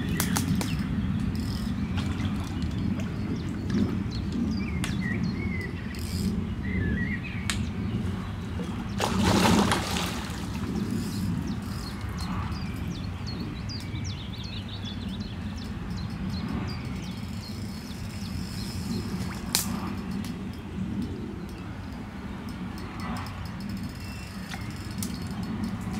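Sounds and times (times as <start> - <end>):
small birds chirping: 0.0 - 25.9
fish splashing in water: 8.7 - 11.0.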